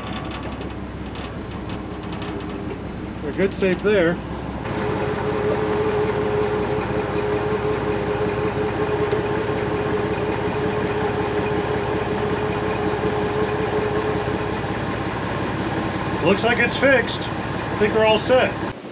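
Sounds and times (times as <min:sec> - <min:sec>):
steady whine: 0:00.0 - 0:18.9
tug engine idling: 0:00.0 - 0:18.9.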